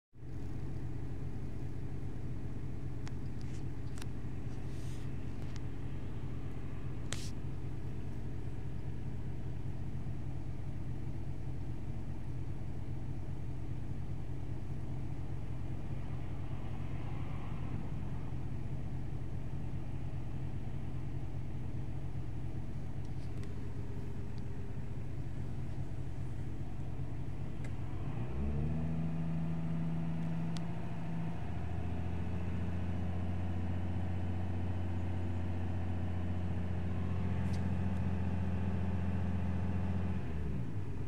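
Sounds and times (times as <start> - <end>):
car engine idling with ticking: 0.2 - 41.0.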